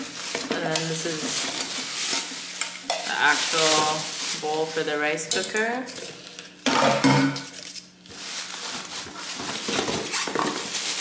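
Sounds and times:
plastic and cardboard rustling: 0.0 - 6.4, 7.4 - 11.0
cooker parts clattering: 0.0 - 11.0.

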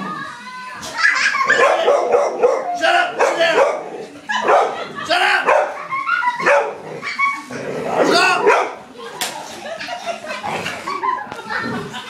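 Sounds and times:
large dog barking: 1.5 - 5.8, 6.4 - 7.1, 7.9 - 8.8.

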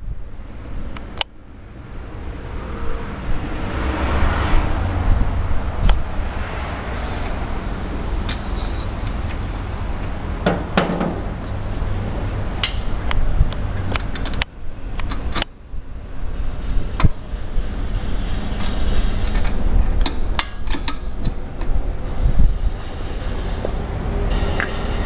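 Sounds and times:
low workshop rumble: 4.6 - 25.0
metal knocks and clatters: 10.4 - 11.5, 16.3 - 25.0.

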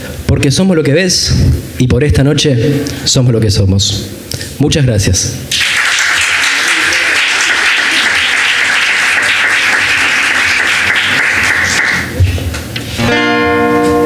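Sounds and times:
audience applauding: 5.5 - 12.2.

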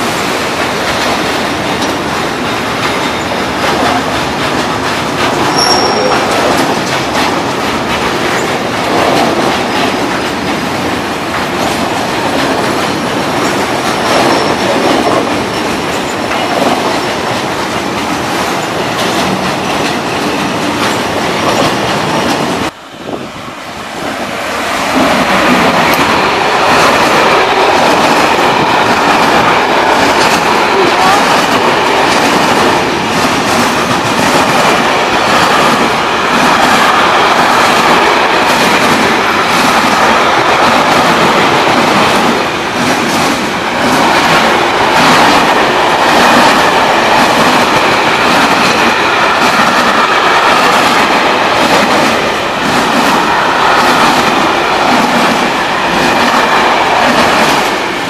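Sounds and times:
train wheels clattering on rails: 0.0 - 23.3, 23.9 - 58.0.

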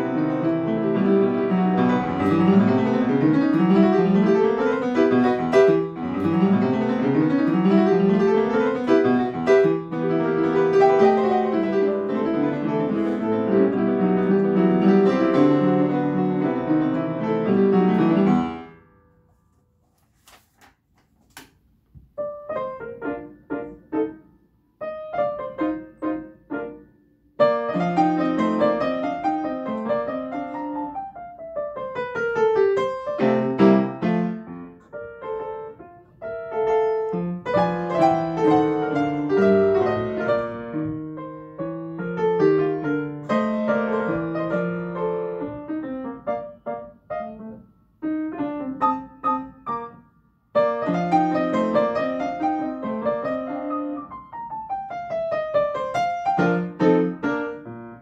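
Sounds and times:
upright piano playing: 0.0 - 19.0, 22.2 - 58.0.

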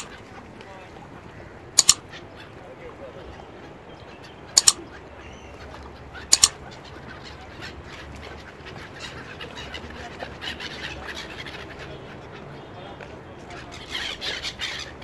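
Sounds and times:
gulls calling: 0.0 - 15.0
double mouse click: 1.8 - 2.0, 4.6 - 4.8, 6.3 - 6.6.

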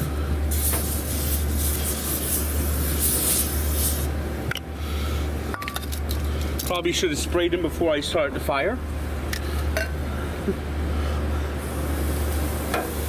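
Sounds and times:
cooking spray hissing: 0.0 - 4.1, 11.6 - 13.0
steady low hum: 0.0 - 13.0.

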